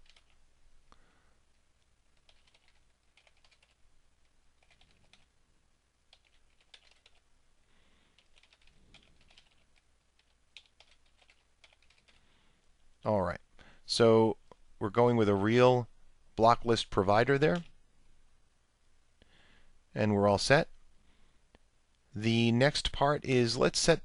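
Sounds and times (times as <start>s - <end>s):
keyboard typing: 0.0s - 0.4s, 2.1s - 3.8s, 4.6s - 5.3s, 6.1s - 7.2s, 8.1s - 12.2s.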